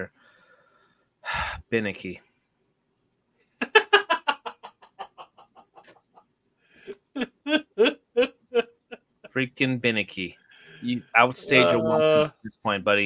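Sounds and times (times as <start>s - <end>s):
man laughing: 3.6s - 5.9s, 10.9s - 12.3s.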